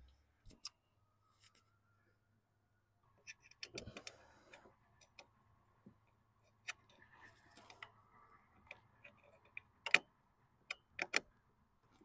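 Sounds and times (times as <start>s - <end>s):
metallic clicks and taps: 8.6s - 10.1s, 10.7s - 11.3s.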